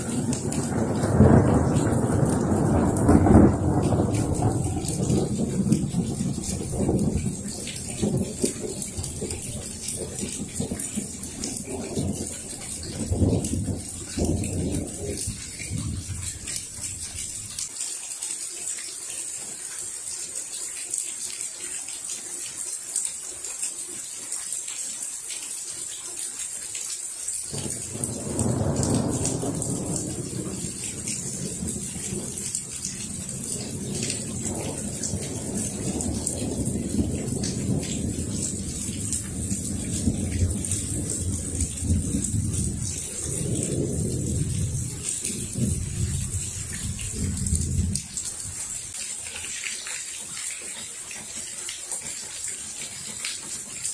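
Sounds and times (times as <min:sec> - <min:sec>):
rolling thunder: 0:00.0 - 0:17.5, 0:27.5 - 0:49.0
rain hissing and pattering: 0:00.0 - 0:53.9.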